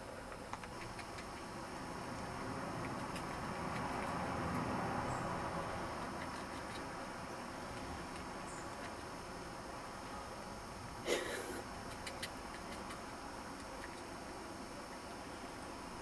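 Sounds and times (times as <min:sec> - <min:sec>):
background hiss: 0:00.0 - 0:16.0
kitten suckling: 0:00.6 - 0:09.2, 0:11.6 - 0:14.1.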